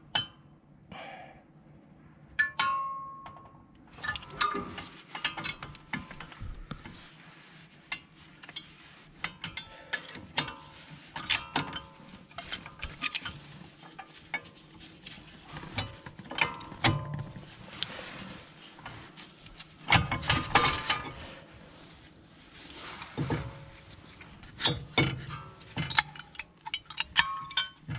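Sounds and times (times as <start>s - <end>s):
metal parts clattering: 24.8s - 27.9s
screwdriver scraping metal brake parts: 24.8s - 27.9s.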